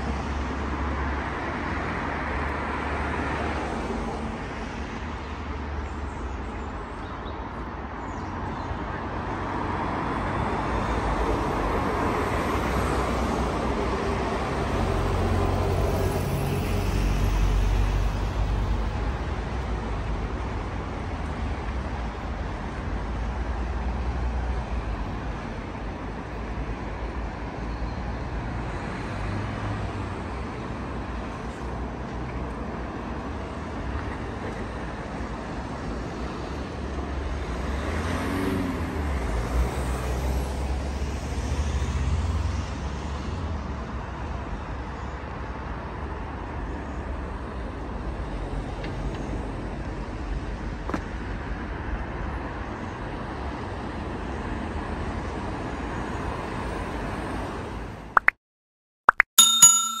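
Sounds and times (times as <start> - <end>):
cars passing on road: 0.0 - 58.2
bell-like ding: 59.4 - 60.0.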